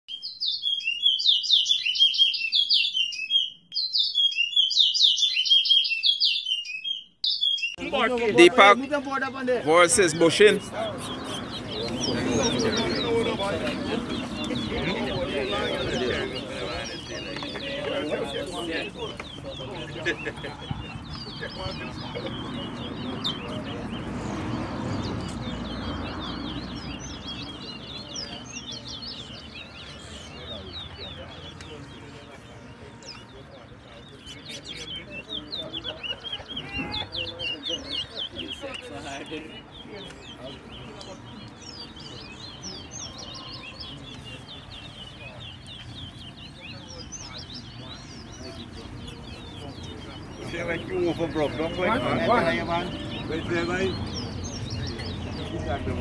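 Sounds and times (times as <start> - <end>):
finch singing whistled notes: 0.1 - 9.0
songbird singing: 0.1 - 56.0.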